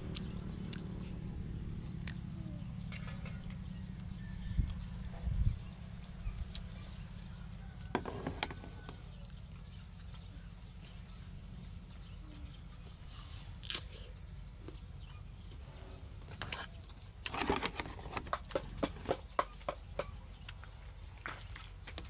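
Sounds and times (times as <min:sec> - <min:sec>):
faint high hum: 0:00.0 - 0:07.9, 0:08.6 - 0:17.3
wind rumble on microphone: 0:02.7 - 0:07.8
phone handling knocks and scrapes: 0:07.9 - 0:08.7.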